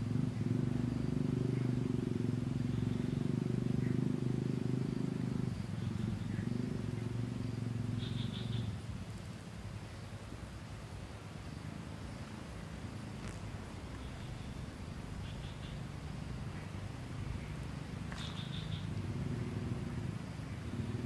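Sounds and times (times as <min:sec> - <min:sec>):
low engine rumble: 0:00.0 - 0:21.0
faint high chirps: 0:17.4 - 0:19.0.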